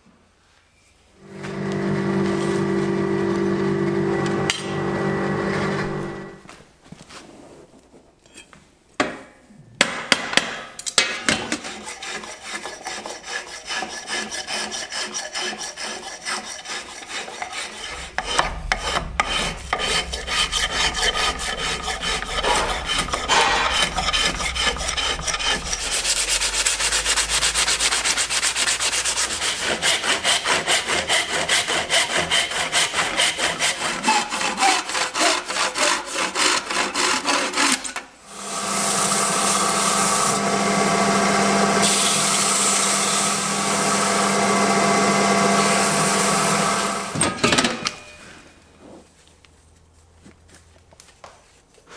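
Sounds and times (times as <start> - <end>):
spokeshave shaving wood: 11.5 - 38.0
sharp knocks: 17.9 - 25.9.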